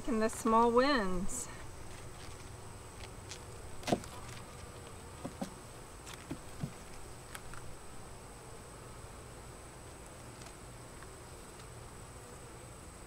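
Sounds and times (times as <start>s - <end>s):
honeybees buzzing: 0.0s - 13.0s
wooden hive frame knocks: 3.8s - 4.5s, 5.1s - 7.0s.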